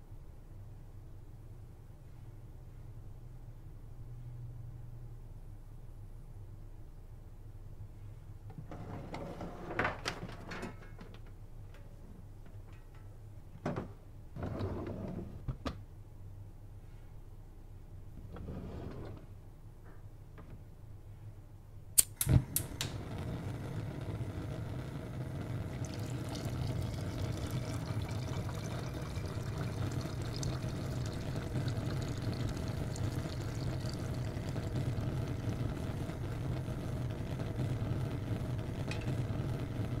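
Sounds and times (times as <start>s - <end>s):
gas burner flame rushing: 22.0s - 40.0s.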